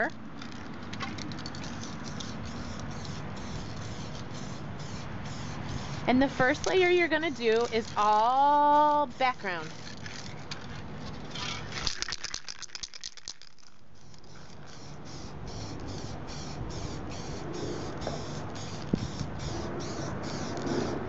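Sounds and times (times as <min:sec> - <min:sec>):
spray can ball rattling: 0:00.4 - 0:21.0
spray can hissing bursts: 0:01.6 - 0:09.6, 0:14.0 - 0:21.0.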